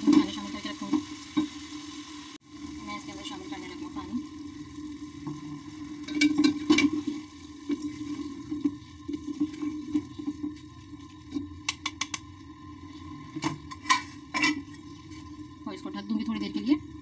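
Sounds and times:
food cooking in water: 0.0 - 17.0
wooden spoon scraping a pot: 13.7 - 15.4.

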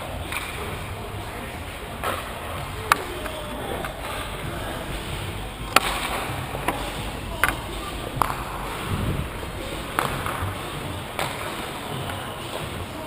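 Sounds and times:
arena background noise: 0.0 - 13.0
faint voices: 0.0 - 13.0
hockey sticks clacking on puck: 2.0 - 9.0, 9.6 - 12.8.

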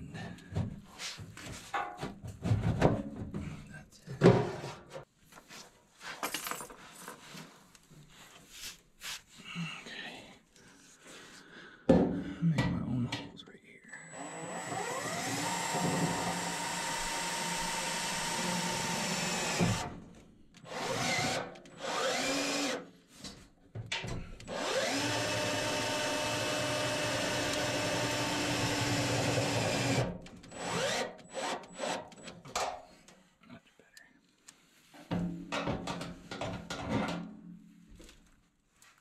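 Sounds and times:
cordless drill driving screws: 14.0 - 19.9, 20.6 - 22.9, 24.4 - 32.4.

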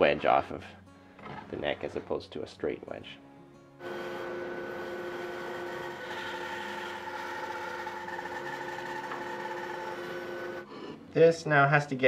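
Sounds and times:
bandsaw cutting wood: 3.8 - 10.8.

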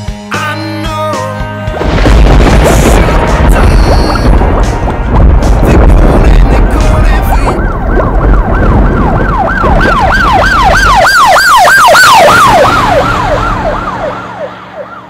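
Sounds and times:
deep rumble: 1.7 - 11.0
siren yelping: 7.1 - 15.0.

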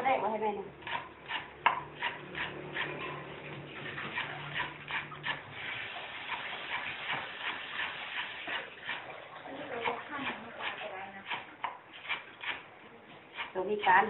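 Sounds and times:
cleaver chopping on wooden board: 0.8 - 3.0.

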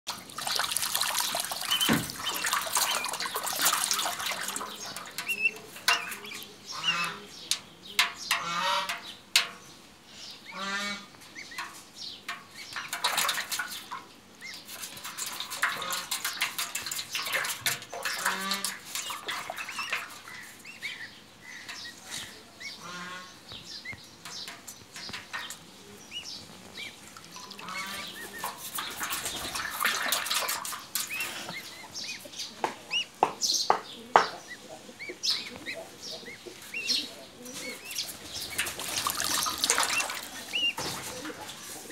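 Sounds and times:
splashing in metal tub of water: 0.1 - 9.6, 11.4 - 22.1, 24.2 - 33.0, 36.8 - 41.9
goslings trilling peeps: 1.6 - 7.3, 8.3 - 9.1, 10.4 - 11.8, 17.2 - 24.0, 26.1 - 30.1.

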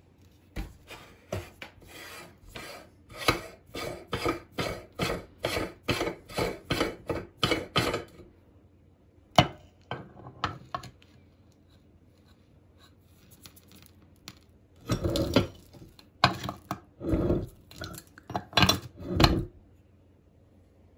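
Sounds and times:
gritty metal scrapes: 14.8 - 18.0, 18.7 - 19.6.

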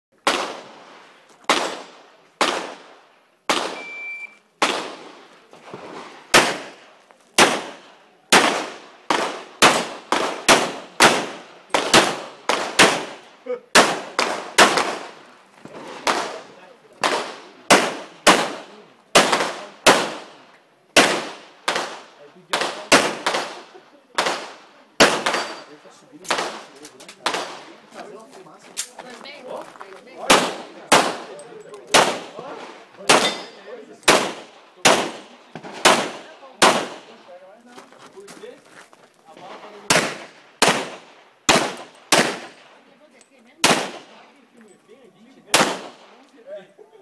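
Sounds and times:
high electronic beep: 3.8 - 4.4
handgun shots echoing: 24.2 - 27.6, 33.0 - 35.2, 39.9 - 42.6, 43.6 - 44.2, 45.5 - 46.2.

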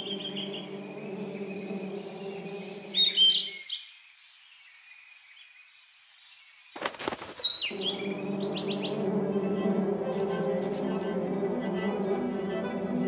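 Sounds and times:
wasp wingbeat buzz: 0.0 - 3.5, 6.8 - 13.0
small birds chirping: 0.0 - 12.6
sharp rustling: 6.8 - 7.8.

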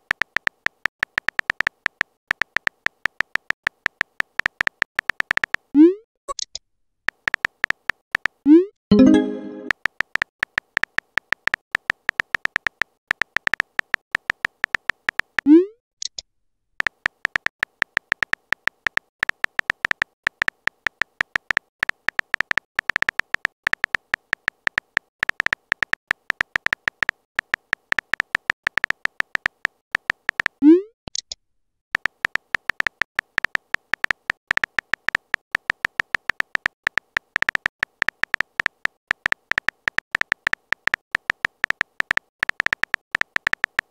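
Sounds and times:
short high typing ticks: 16.8 - 31.4, 32.0 - 43.9.

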